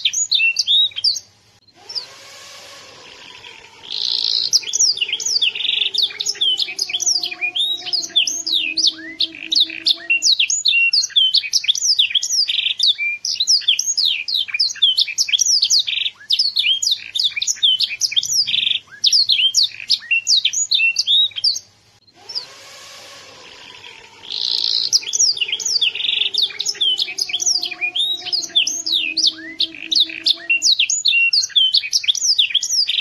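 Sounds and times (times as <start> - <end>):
canary singing: 0.0 - 33.0.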